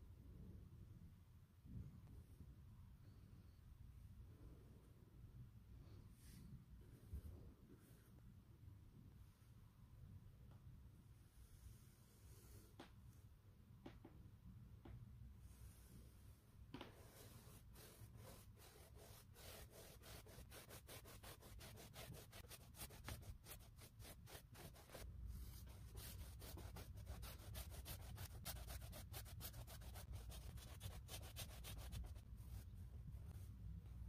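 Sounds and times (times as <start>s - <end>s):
brush stroking canvas: 15.4s - 33.5s.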